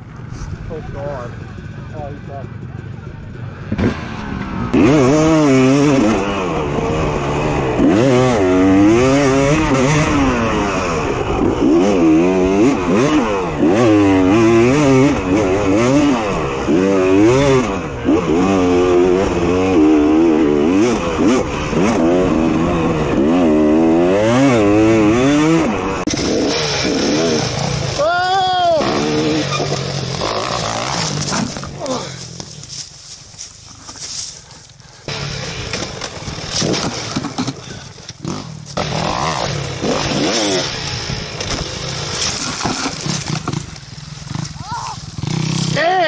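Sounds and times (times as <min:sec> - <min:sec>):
dirt bike engine revving: 0:01.0 - 0:32.8, 0:35.0 - 0:46.0.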